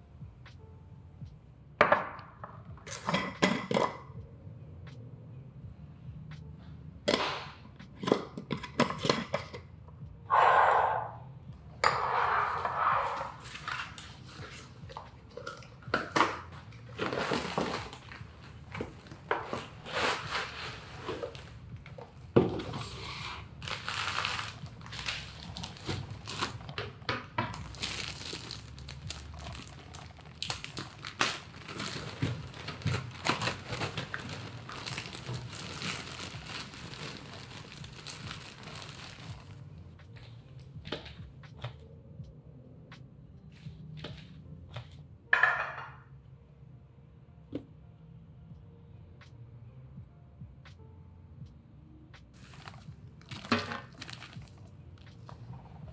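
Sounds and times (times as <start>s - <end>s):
plastic bag crinkling: 23.6s - 26.8s, 27.5s - 39.6s, 52.4s - 54.7s.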